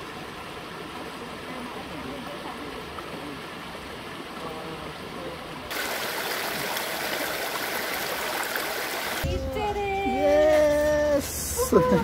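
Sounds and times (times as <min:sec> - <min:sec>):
creek water flowing over stones: 0:00.0 - 0:09.4.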